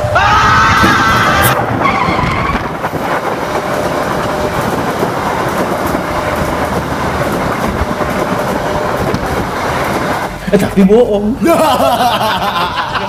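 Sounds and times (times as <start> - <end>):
train wheels rumbling and rattling: 0.0 - 13.0.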